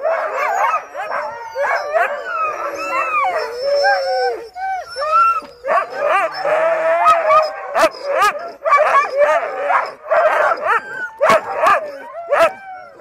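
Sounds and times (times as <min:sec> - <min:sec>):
dogs barking: 0:00.0 - 0:03.6, 0:05.6 - 0:12.6
dogs howling and yipping: 0:00.0 - 0:13.0.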